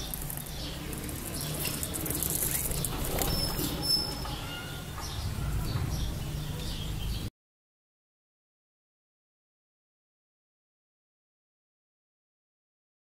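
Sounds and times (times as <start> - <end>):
budgerigars chirping: 0.0 - 7.3.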